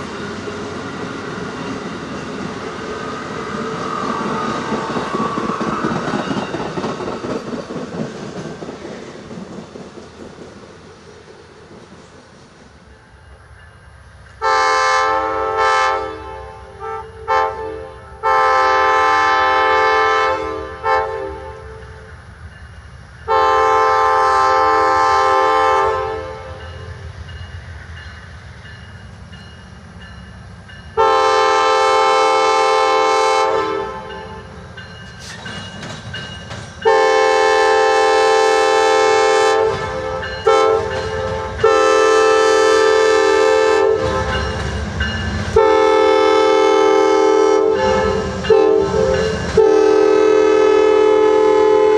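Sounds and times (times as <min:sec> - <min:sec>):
train wheels rumbling on rails: 0:00.0 - 0:51.9
locomotive air horn blasts: 0:14.4 - 0:21.8, 0:23.3 - 0:26.6, 0:31.0 - 0:34.4, 0:36.8 - 0:44.4, 0:45.6 - 0:51.9.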